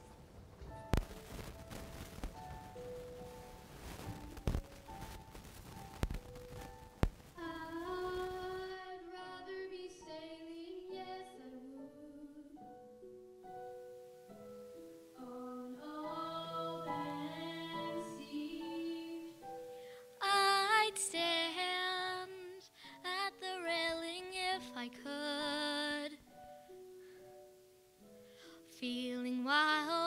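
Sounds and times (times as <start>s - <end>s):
girl singing with vibrato: 7.4s - 12.6s, 15.2s - 19.4s, 20.2s - 26.2s.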